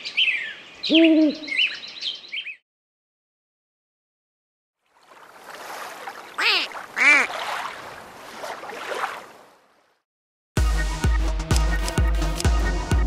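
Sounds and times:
water washing: 5.0 - 9.4
duck quacks: 6.4 - 7.4.

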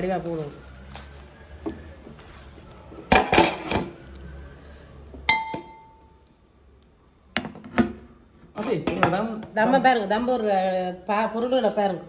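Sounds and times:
pot lid ringing metallic tone: 5.3 - 6.0.

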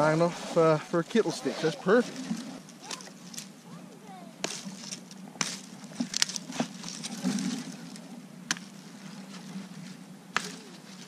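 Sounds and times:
brush rustling: 0.0 - 11.0
twigs cracking and snapping: 4.4 - 11.0.

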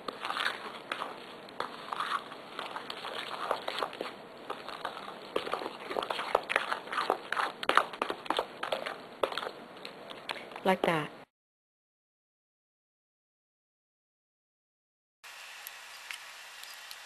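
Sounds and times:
fork mixing batter in metal bowl: 0.0 - 10.4.

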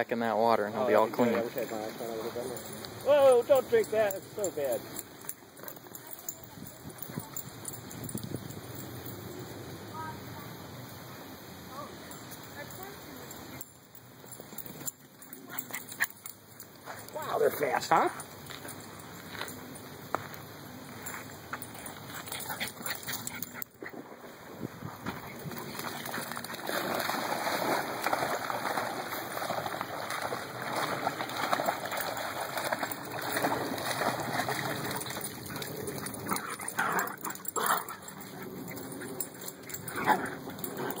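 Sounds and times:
dogs splashing in water: 25.2 - 41.0.

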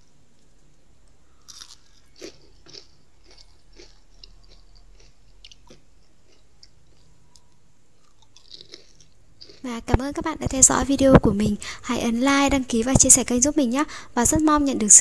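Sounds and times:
person crunching crispy food: 1.1 - 7.4, 8.0 - 9.7.

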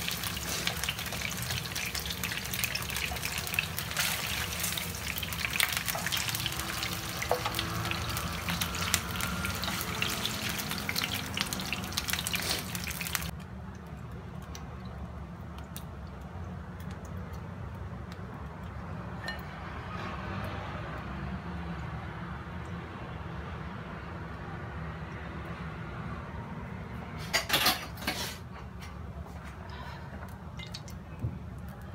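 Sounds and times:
chicken sizzling in oil: 0.0 - 13.3.

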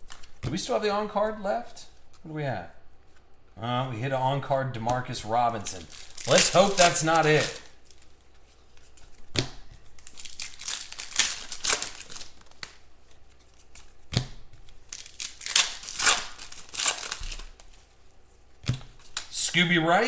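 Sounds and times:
foil wrapper crinkling and tearing: 5.6 - 8.2, 9.9 - 12.8, 14.8 - 17.9.

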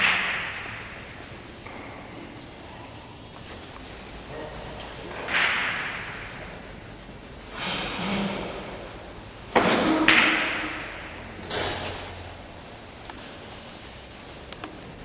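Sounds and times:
cue tip striking ball: 0.0 - 1.0, 5.2 - 6.3.

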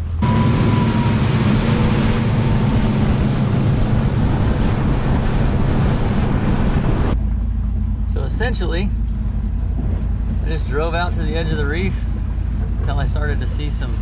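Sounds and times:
wind rushing on microphone: 0.0 - 7.2
boat engine drone: 0.0 - 14.0
water rushing past hull: 0.0 - 14.0.

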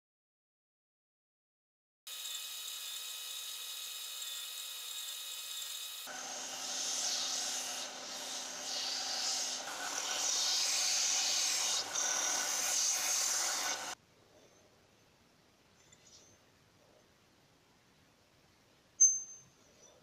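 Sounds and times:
metal grinding on sanding belt: 5.6 - 14.0
sander motor whine: 6.1 - 10.9.

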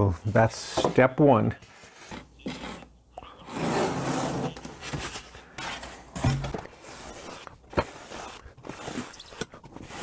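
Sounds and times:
styrofoam box rubbing and scraping: 6.7 - 10.0.

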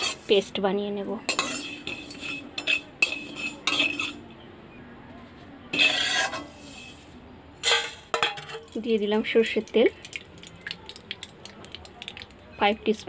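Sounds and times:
metal spatula scraping a pan: 0.0 - 0.6, 1.2 - 4.2, 5.7 - 8.8.

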